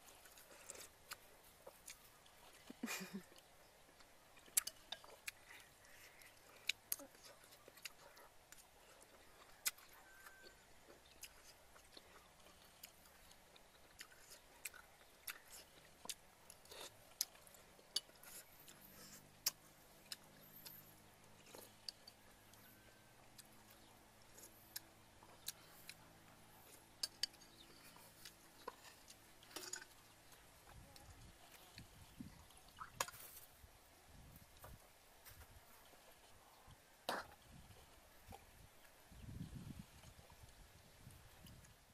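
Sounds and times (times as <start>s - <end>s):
chewing and mouth clicks: 0.0s - 33.6s.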